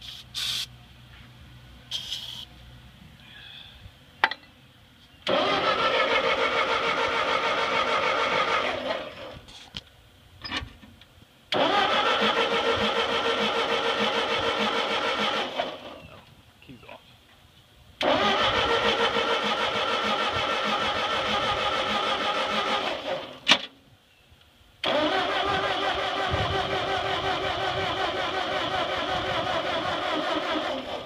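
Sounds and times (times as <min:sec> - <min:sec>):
tractor engine cranking: 0:05.2 - 0:09.7, 0:11.5 - 0:16.0, 0:18.0 - 0:23.7, 0:24.8 - 0:31.0.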